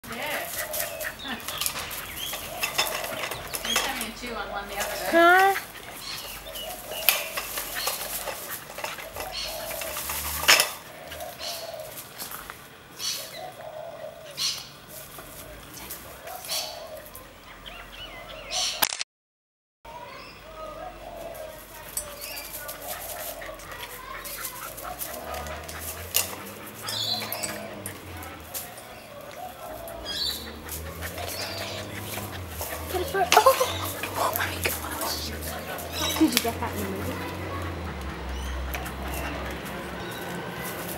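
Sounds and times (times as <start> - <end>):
metal tricycle rattling: 0.0 - 13.2, 21.1 - 40.9
tricycle clicks and knocks: 1.4 - 10.9
dog making small vocal sounds: 22.8 - 40.1.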